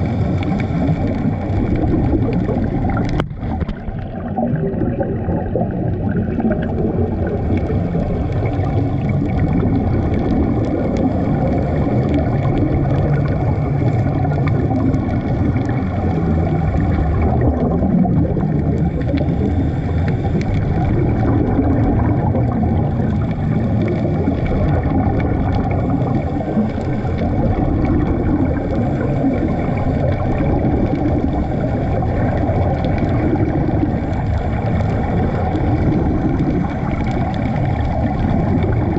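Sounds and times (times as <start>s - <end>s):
low underwater rumble: 0.0s - 38.9s
regulator bubbles gurgling: 0.0s - 38.9s.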